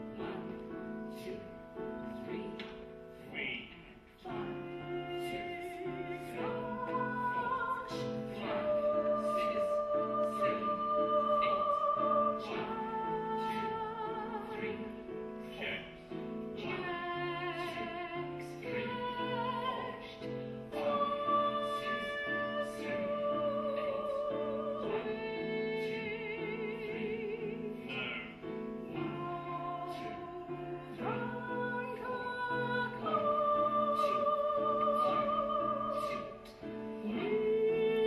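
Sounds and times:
piano accompaniment: 0.0 - 38.0
woman singing operatically: 4.3 - 15.0, 16.6 - 27.9, 29.0 - 36.4, 37.0 - 38.0.

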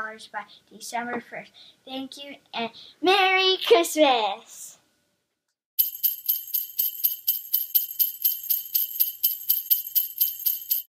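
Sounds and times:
jingle bells shaken: 5.8 - 10.9.

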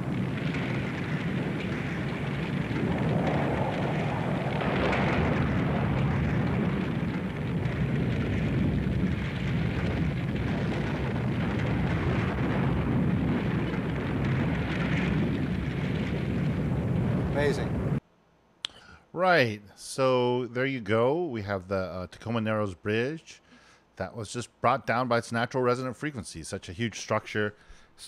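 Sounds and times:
bridge collapsing with rushing rumble: 0.0 - 18.0.

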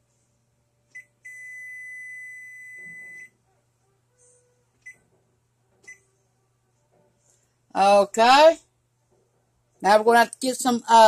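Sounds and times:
electronic beeps: 0.9 - 3.4.

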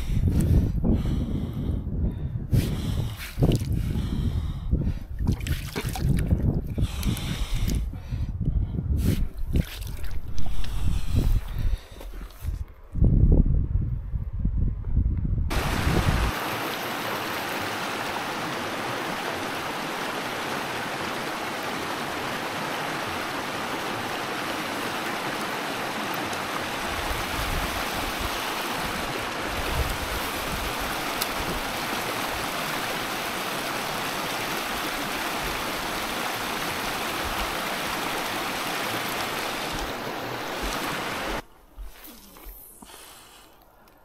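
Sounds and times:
water rushing over rocks: 15.5 - 41.4.

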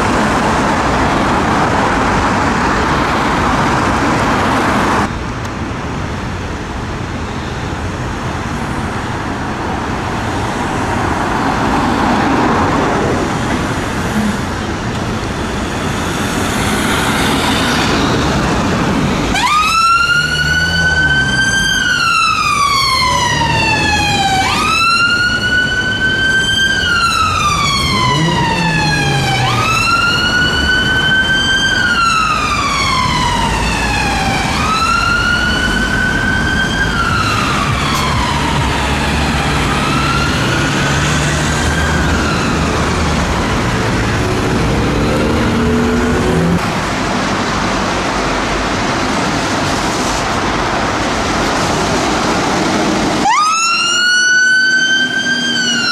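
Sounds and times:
traffic background noise: 0.0 - 55.9
ambulance siren wailing: 16.3 - 46.6, 52.4 - 55.9.

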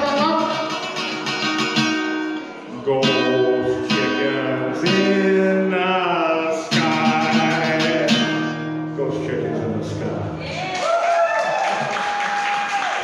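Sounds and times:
strummed guitar chords: 0.0 - 10.4
man singing: 2.7 - 10.4.

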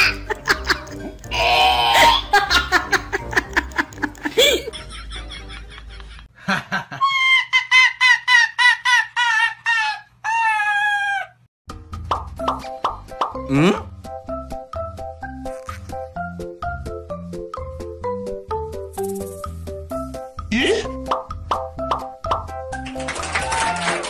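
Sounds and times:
dog yelping: 9.8 - 11.4.

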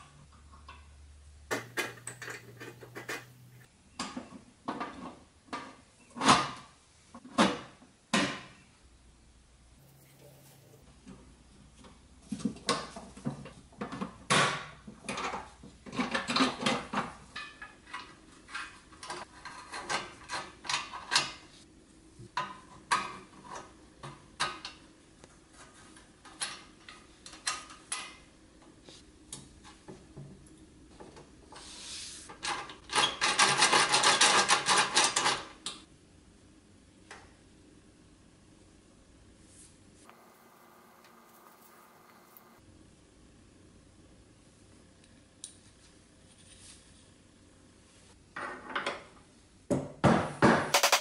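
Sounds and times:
toy gears clinking on steel frame: 50.7 - 51.0.

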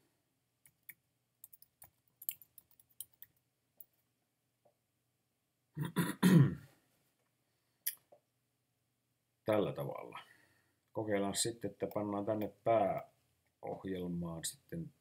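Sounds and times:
computer keyboard typing: 0.7 - 3.4
man clearing throat: 5.8 - 6.7.

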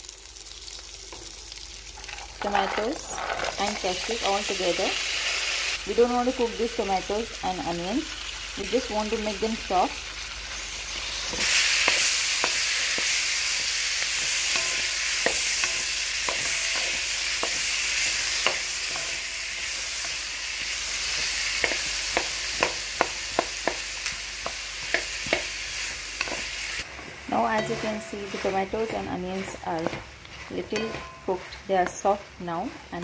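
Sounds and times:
vegetables sizzling in hot oil: 0.0 - 33.0
wooden spatula scraping a pan: 2.4 - 4.5, 26.2 - 33.0.

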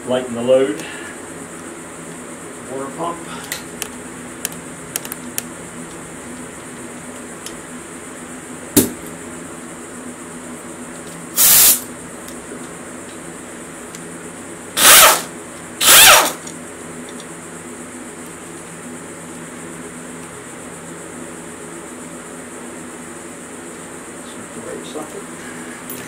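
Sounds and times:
pneumatic wrench bursts: 11.4 - 11.9, 14.8 - 16.4.

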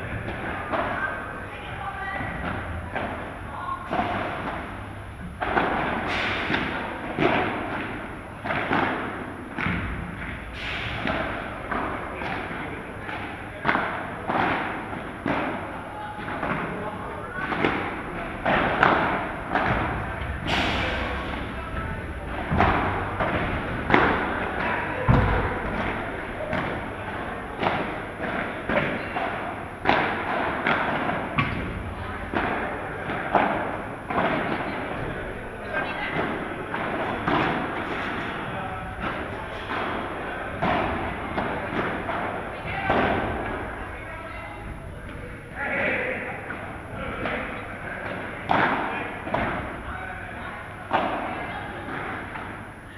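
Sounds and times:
ball hit by paddles: 2.2 - 16.8, 17.4 - 35.0, 36.1 - 38.3, 38.9 - 43.7, 48.0 - 49.8
padel ball hits: 17.6 - 26.9
deep thud: 19.5 - 26.8.

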